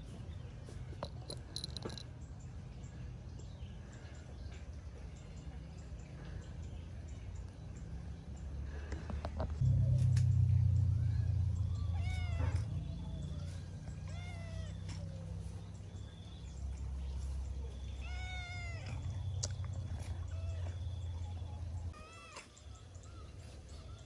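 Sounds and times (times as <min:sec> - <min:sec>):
steady low rumble: 0:09.5 - 0:18.0
cat meowing: 0:11.9 - 0:12.8, 0:14.0 - 0:14.8, 0:18.0 - 0:18.9.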